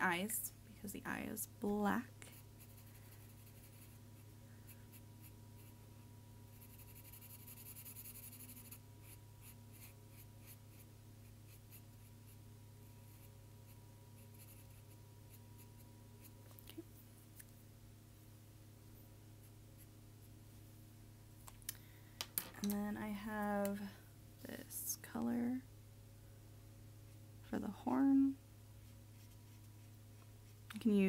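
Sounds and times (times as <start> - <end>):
steady low hum: 0.0 - 31.0
marker scratching on paper: 2.3 - 4.0, 6.5 - 10.9, 14.2 - 16.3, 28.8 - 30.0.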